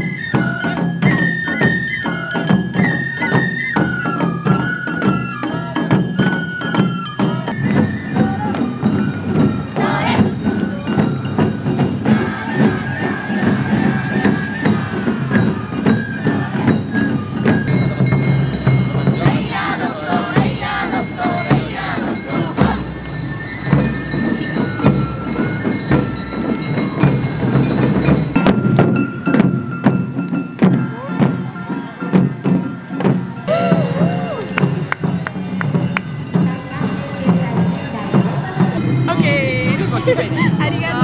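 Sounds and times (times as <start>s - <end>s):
taiko drums: 0.0s - 41.0s
metallic bell strikes: 8.9s - 41.0s
high melody line: 14.2s - 31.1s.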